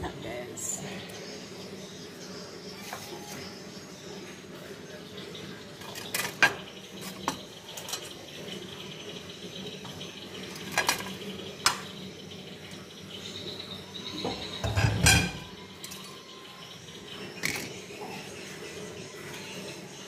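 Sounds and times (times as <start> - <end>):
low background hum: 0.0 - 20.0
kitchenware clinking: 14.2 - 16.2.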